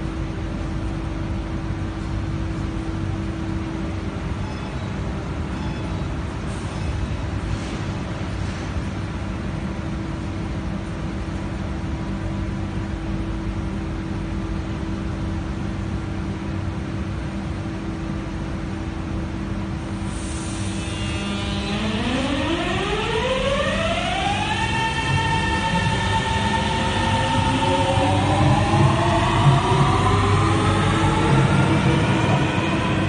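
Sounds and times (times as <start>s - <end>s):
metro train humming: 0.0s - 33.0s
traction inverter whine: 18.3s - 33.0s
air hiss: 19.9s - 21.0s.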